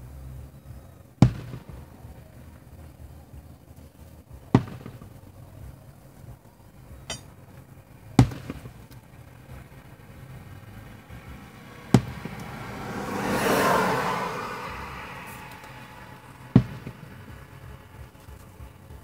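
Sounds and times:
car passing close by: 10.2s - 19.0s.

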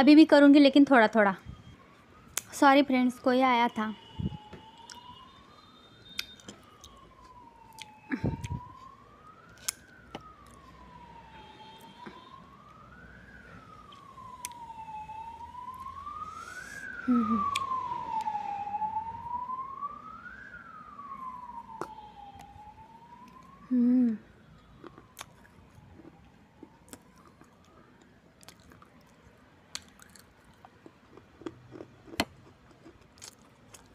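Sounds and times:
wailing siren: 1.1s - 30.8s, 31.4s - 31.9s
dry clay being chewed: 6.1s - 10.9s, 24.8s - 33.9s.

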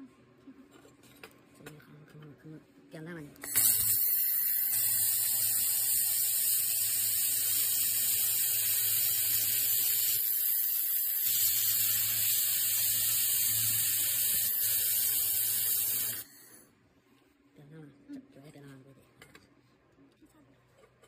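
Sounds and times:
laser welder hissing: 3.5s - 16.3s.

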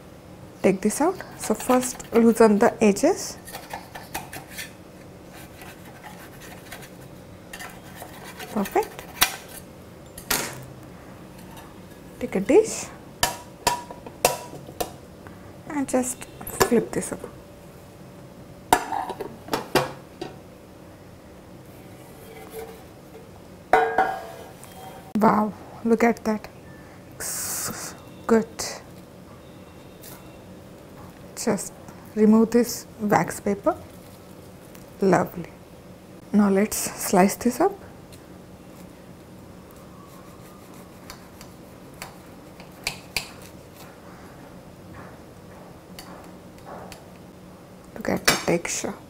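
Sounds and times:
metal tin clanking: 22.3s - 25.1s.

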